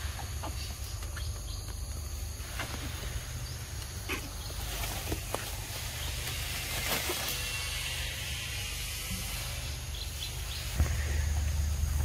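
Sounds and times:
high hiss: 5.5s - 12.0s
low rumble: 10.4s - 12.0s.

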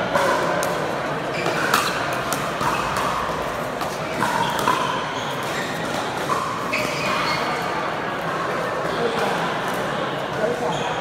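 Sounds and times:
murmur of spectators: 0.0s - 11.0s
paddles hitting plastic ball: 0.1s - 4.9s
shoes squeaking on court: 1.2s - 7.8s.

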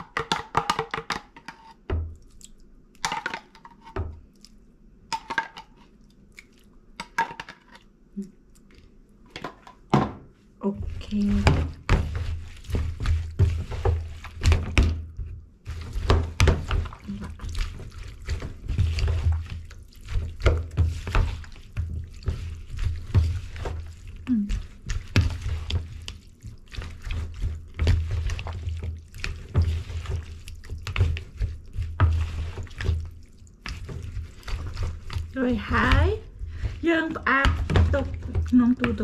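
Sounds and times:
spoon knocking plastic bowl: 0.0s - 2.0s
wet squelches of tossed meat: 10.8s - 39.0s.

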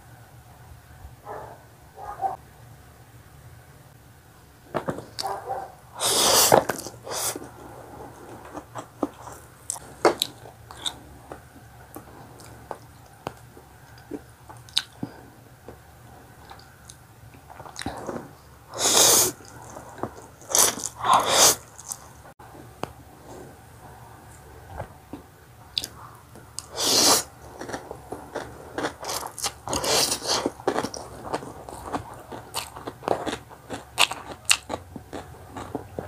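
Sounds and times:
wet chewing: 5.1s - 15.2s, 16.4s - 22.2s, 25.1s - 36.0s
slurping noodles: 6.0s - 11.0s, 17.7s - 22.0s, 26.6s - 33.3s.

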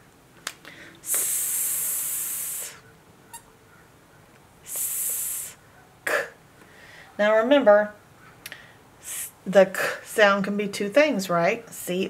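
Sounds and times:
person hissing: 0.8s - 2.8s, 4.6s - 6.4s, 9.0s - 9.4s.

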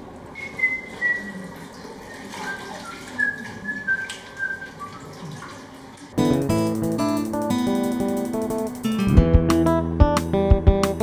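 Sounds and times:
person whistling: 0.4s - 1.4s
acoustic guitar music: 6.2s - 11.0s.

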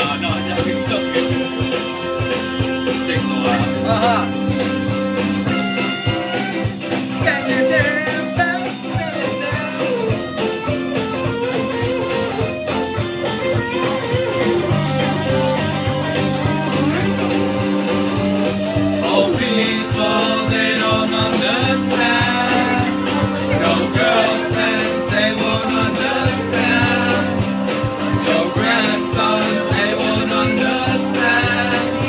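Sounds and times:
voices singing: 0.0s - 10.5s, 13.2s - 32.0s
guitar rock music: 0.0s - 32.0s.

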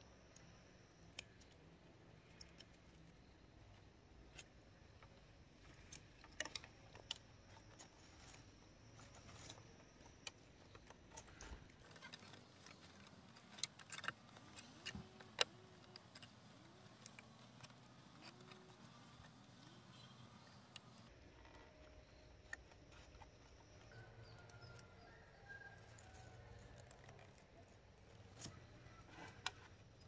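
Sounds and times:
lashing strips clicking and rustling: 5.6s - 19.7s.

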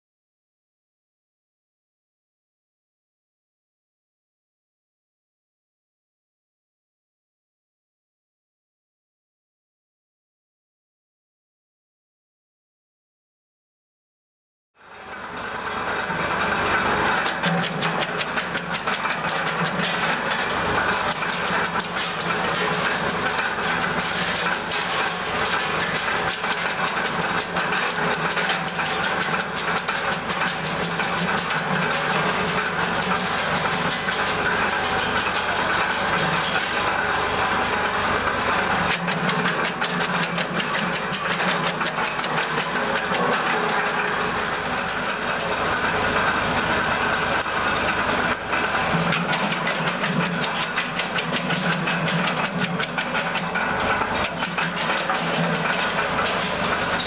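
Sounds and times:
tractor engine running: 14.8s - 57.0s
wood chipper chopping branches: 15.6s - 57.0s.

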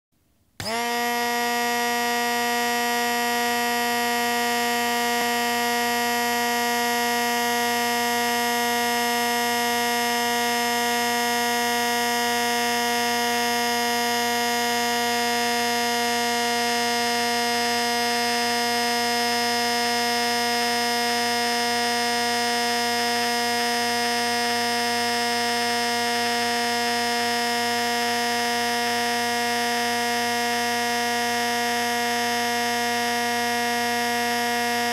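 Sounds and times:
blender motor whine: 0.6s - 34.9s.

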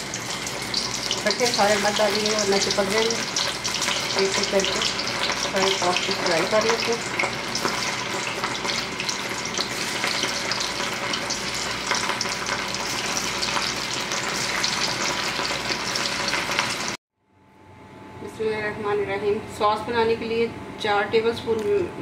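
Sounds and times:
meatballs deep-frying in oil: 0.0s - 17.0s.

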